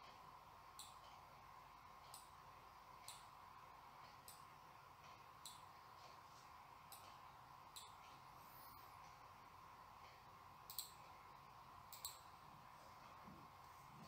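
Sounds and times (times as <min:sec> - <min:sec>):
faint steady hum: 0:00.0 - 0:14.0
computer mouse clicks: 0:00.8 - 0:01.2, 0:03.0 - 0:03.3, 0:05.1 - 0:05.7, 0:06.9 - 0:08.2, 0:10.0 - 0:11.2, 0:11.9 - 0:12.3.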